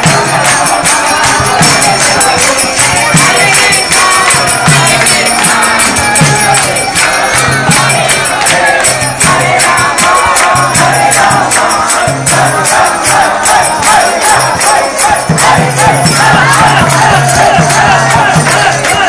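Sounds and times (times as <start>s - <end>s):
drum: 0.0s - 19.0s
group singing a devotional chant: 0.0s - 19.0s
hand cymbals clashing: 0.0s - 19.0s.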